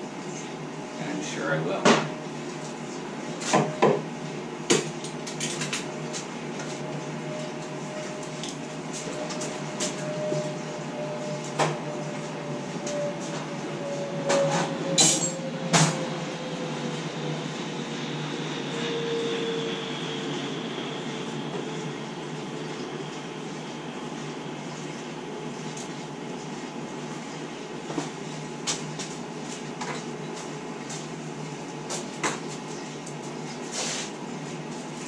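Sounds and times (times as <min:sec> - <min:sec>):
jet aircraft roar: 0:07.2 - 0:23.9.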